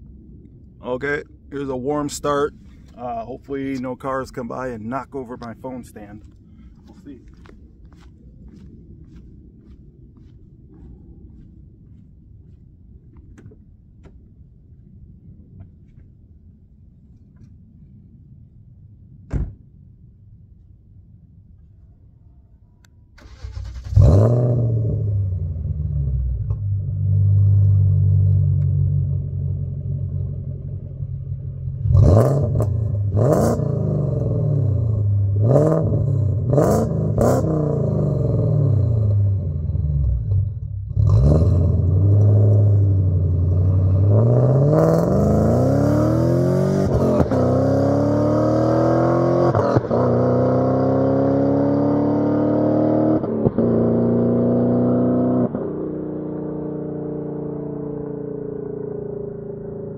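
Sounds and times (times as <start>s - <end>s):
engine revving: 23.2s - 29.6s, 31.8s - 57.5s
car engine starting: 23.2s - 54.0s
car accelerating away: 23.2s - 59.9s.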